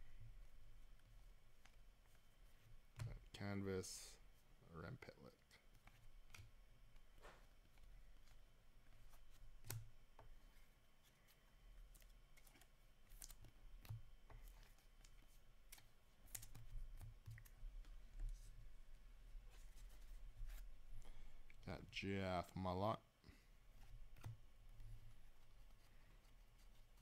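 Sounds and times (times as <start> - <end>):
faint low hum: 0.0 - 27.0
cards clicking and tapping: 5.5 - 10.4, 11.1 - 18.1.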